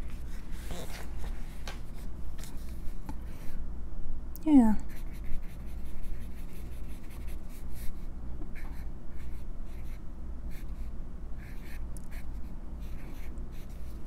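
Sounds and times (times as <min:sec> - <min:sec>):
fountain pen scratching on paper: 0:04.9 - 0:08.0.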